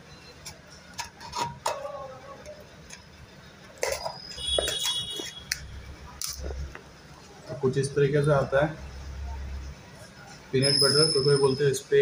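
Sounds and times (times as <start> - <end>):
brief high squeal: 10.6 - 11.6.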